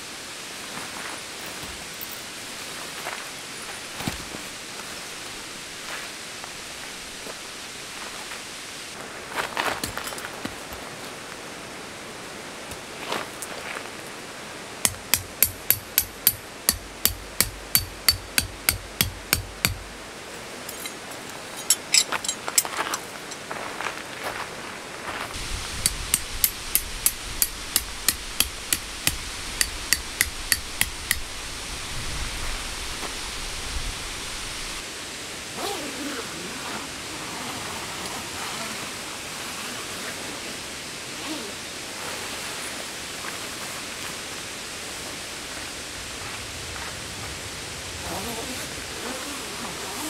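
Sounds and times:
steady background hiss: 0:00.0 - 0:50.0
hammer striking tent peg: 0:14.8 - 0:20.0, 0:25.8 - 0:31.3.

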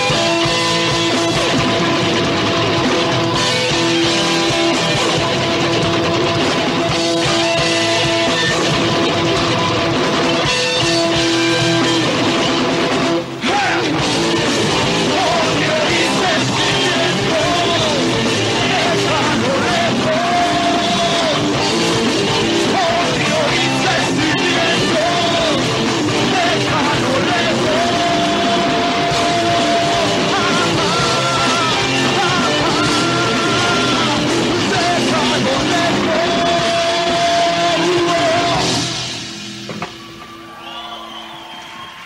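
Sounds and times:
rock band playing: 0:00.0 - 0:42.0
person singing: 0:15.0 - 0:21.6, 0:22.6 - 0:39.0.

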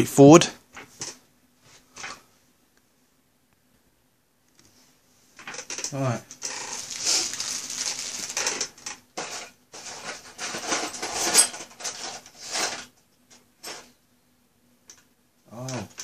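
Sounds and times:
plastic bag rustling: 0:06.4 - 0:12.9.

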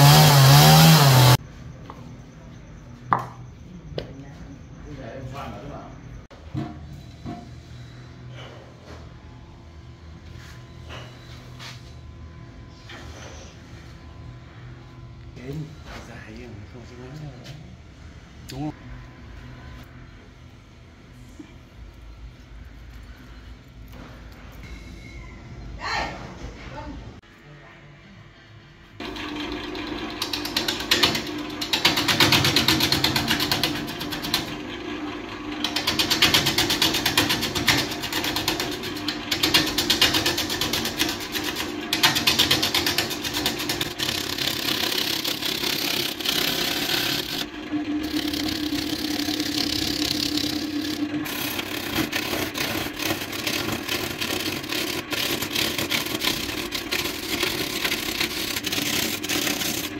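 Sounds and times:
lathe motor hum: 0:00.0 - 0:01.4, 0:29.0 - 0:59.9.

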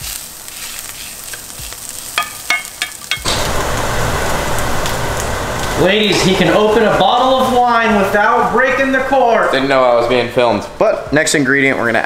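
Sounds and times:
spoon scraping a pan: 0:00.0 - 0:03.2
vegetables sizzling in a pan: 0:00.0 - 0:07.9.

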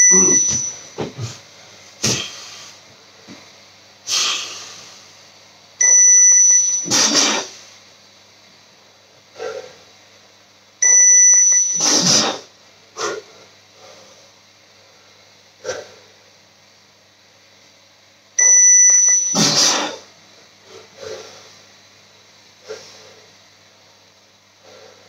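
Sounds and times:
electronic beeper: 0:00.0 - 0:01.1, 0:05.8 - 0:07.1, 0:10.8 - 0:12.3, 0:18.4 - 0:19.8.

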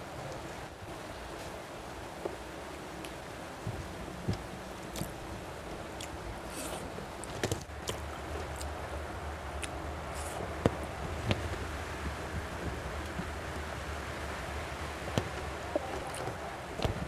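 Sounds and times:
background hiss: 0:00.0 - 0:17.0
mouth sounds eating: 0:06.0 - 0:08.8, 0:09.5 - 0:10.5, 0:15.7 - 0:16.6.

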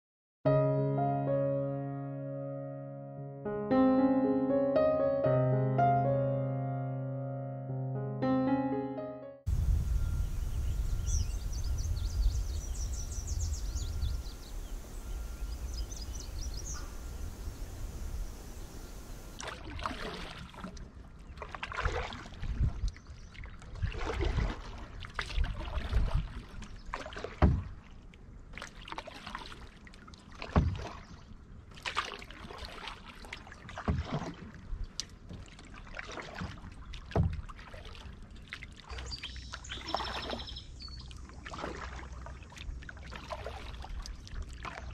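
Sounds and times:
low rumble: 0:09.5 - 0:19.4
birds chirping: 0:09.6 - 0:19.4, 0:38.9 - 0:41.1
canoe paddle splashing: 0:09.9 - 0:44.9.

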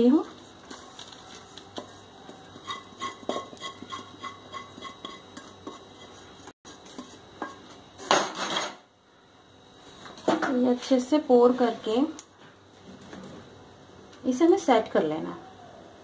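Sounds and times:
metal spoon scraping a pan: 0:00.0 - 0:08.7.

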